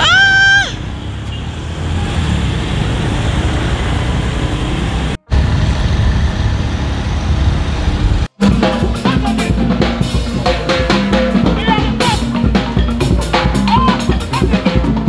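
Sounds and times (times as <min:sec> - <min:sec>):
wind and road noise: 0:00.0 - 0:08.4
drums: 0:05.2 - 0:15.0
xylophones struck with mallets: 0:08.4 - 0:15.0.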